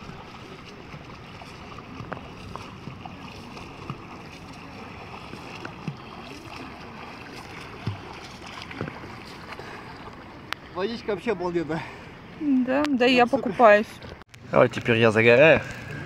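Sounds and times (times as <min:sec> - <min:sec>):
water splashes and drips: 0:00.0 - 0:10.8
small waves lapping: 0:00.0 - 0:16.0.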